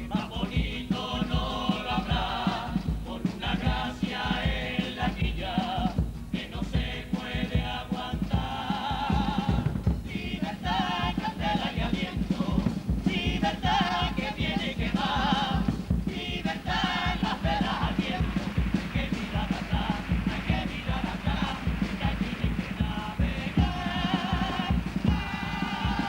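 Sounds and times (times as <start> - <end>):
chorus singing in harmony: 0.0 - 26.0
instrumental beat: 0.0 - 26.0.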